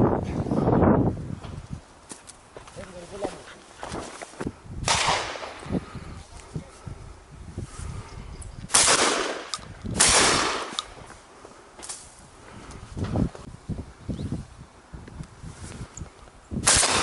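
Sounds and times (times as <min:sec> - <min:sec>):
shotgun shots echoing: 0:04.8 - 0:05.6, 0:08.7 - 0:10.9, 0:16.6 - 0:17.0.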